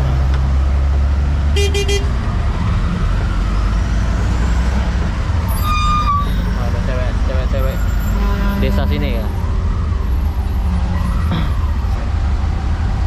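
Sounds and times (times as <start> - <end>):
low rumble of engines: 0.0 - 13.0
vehicle horns honking: 1.6 - 2.2, 5.5 - 6.6, 7.4 - 9.2.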